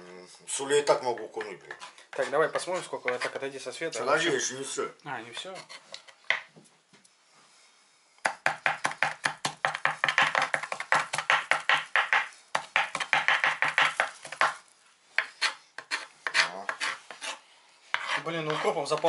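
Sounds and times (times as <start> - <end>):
knife chopping on wooden board: 8.2 - 14.6.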